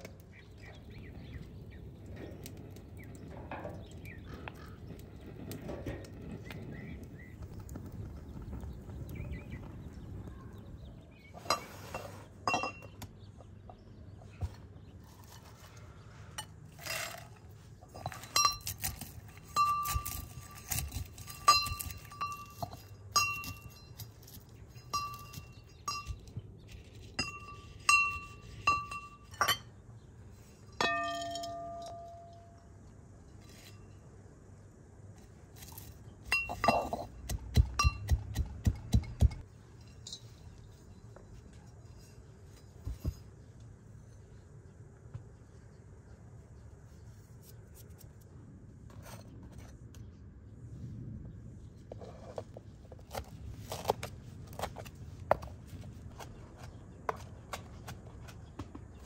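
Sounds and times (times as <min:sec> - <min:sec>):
pestle striking brass mortar: 0:36.4 - 0:39.4.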